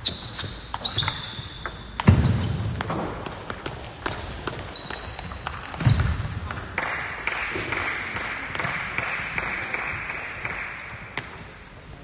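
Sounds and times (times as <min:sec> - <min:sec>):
shoes squeaking on floor: 0:00.0 - 0:03.1, 0:04.3 - 0:06.2
table tennis balls clicking: 0:00.1 - 0:11.7.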